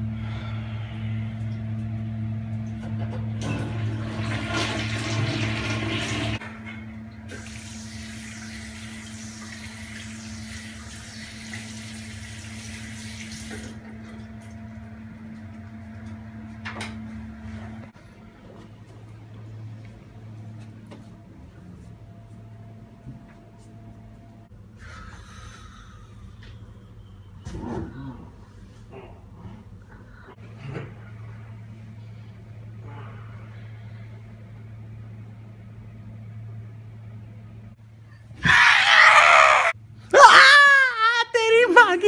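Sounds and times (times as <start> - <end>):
low hum: 0.0 - 4.3, 13.6 - 38.4
water running: 3.4 - 6.5, 7.2 - 14.6.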